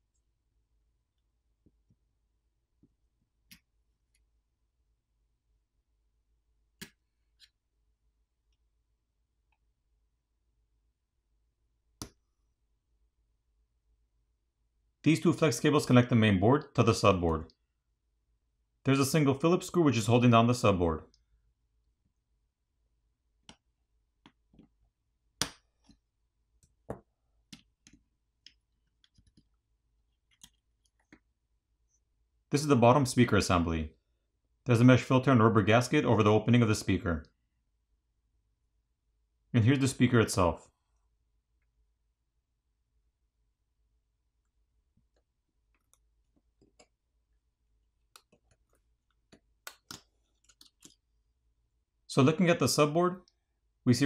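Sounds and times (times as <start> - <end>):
faint clicks and light taps: 26.6 - 29.6, 44.4 - 47.0, 48.0 - 51.1.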